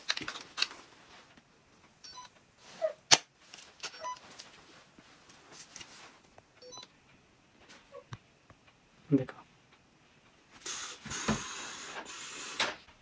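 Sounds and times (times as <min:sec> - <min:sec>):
plastic clicks and handling noise: 0:00.0 - 0:01.5.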